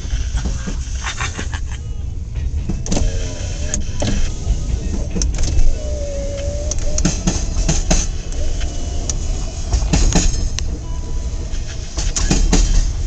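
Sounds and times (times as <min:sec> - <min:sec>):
freight train rumbling past: 0:00.0 - 0:13.0
wheels clicking over rail joints: 0:00.0 - 0:13.0
train wheel squeal: 0:03.0 - 0:13.0.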